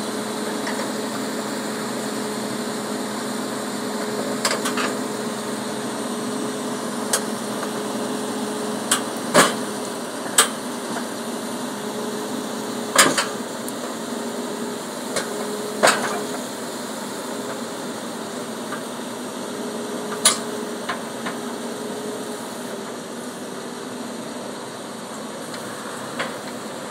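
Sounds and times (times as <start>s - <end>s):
diesel engine running: 0.0s - 26.9s
steel tracks clanking on ramps: 4.0s - 5.1s, 8.9s - 11.2s, 12.8s - 14.0s, 15.1s - 16.5s, 20.0s - 21.4s, 25.4s - 26.9s.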